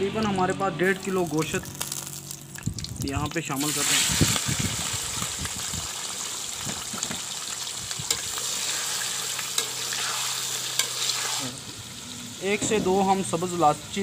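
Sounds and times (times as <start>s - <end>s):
chicken sizzling in hot oil: 0.8s - 14.0s
metal spoon scraping a pan: 8.1s - 11.6s.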